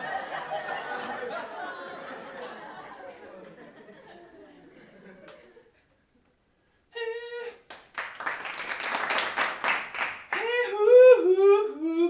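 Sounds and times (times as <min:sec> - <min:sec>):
hands clapping: 0:05.2 - 0:05.5, 0:07.7 - 0:10.6
person humming: 0:06.9 - 0:07.7, 0:10.4 - 0:12.0.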